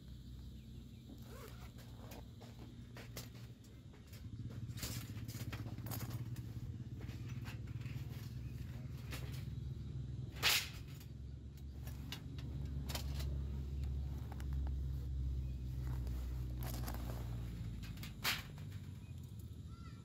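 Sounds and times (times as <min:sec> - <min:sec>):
low steady rumble: 0:00.0 - 0:20.0
thin metal plates clinking: 0:15.8 - 0:19.4.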